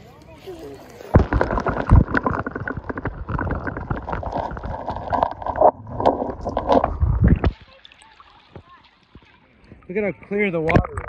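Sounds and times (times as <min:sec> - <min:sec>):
muffled underwater gurgling: 0:01.1 - 0:07.6.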